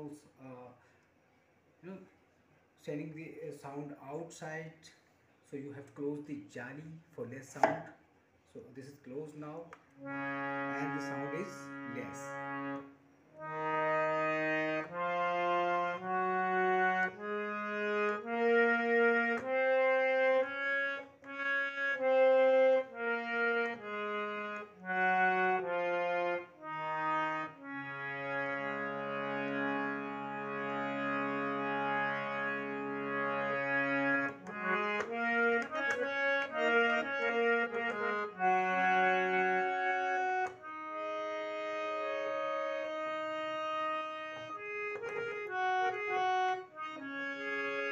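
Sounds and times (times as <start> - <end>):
harmonium playing slow melody: 10.0 - 47.9.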